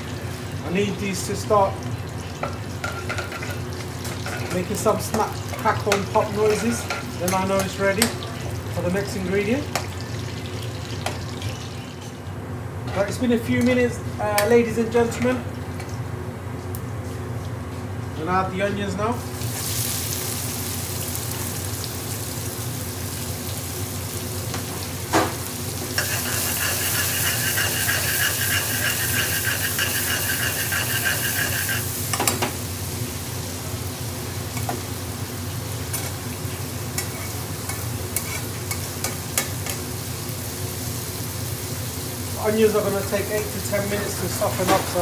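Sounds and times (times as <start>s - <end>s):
onions sizzling in oil: 19.3s - 45.0s.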